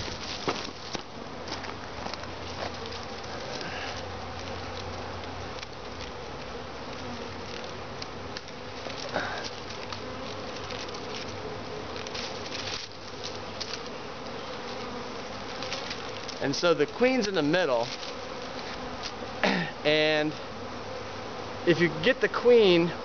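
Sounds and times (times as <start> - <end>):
clicks and rustles: 0.0 - 13.9, 15.5 - 16.4
bees buzzing: 0.0 - 23.0.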